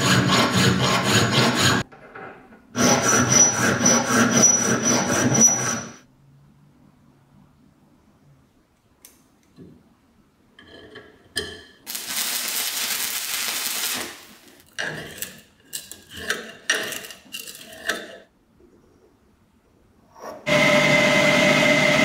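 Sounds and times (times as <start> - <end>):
welding arc hissing: 11.9 - 14.6.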